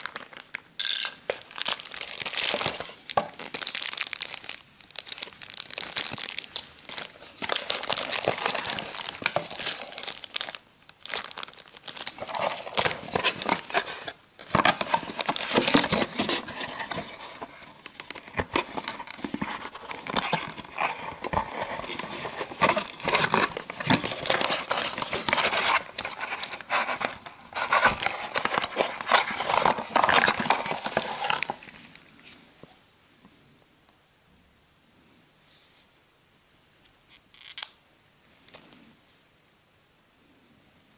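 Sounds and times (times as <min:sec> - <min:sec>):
plastic bags crinkling: 0:00.0 - 0:31.8.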